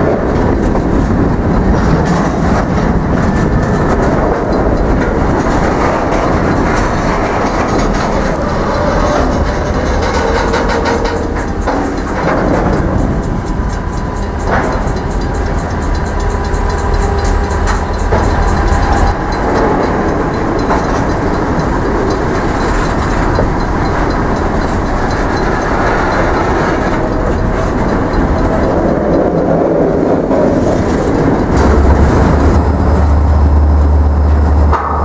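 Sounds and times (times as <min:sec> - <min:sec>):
train wheels rumbling on rails: 0:00.0 - 0:35.0
deep low hum: 0:31.2 - 0:35.0.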